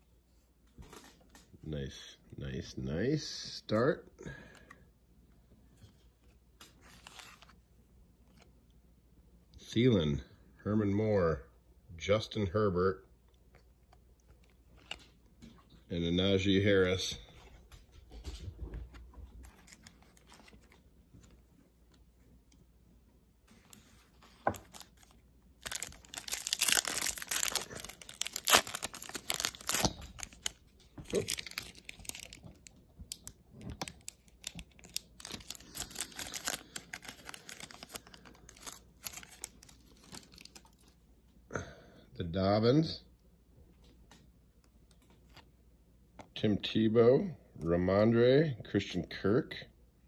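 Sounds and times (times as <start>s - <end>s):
foil wrapper tearing and crinkling: 23.8s - 40.8s.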